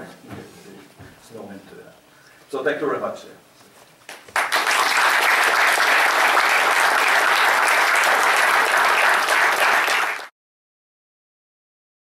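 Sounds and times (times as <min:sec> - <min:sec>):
audience applauding: 0:04.2 - 0:10.3.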